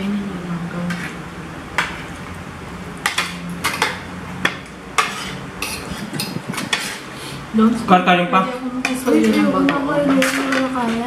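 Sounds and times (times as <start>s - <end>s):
cutlery clinking on ceramic plates: 3.0s - 7.0s, 8.8s - 11.0s.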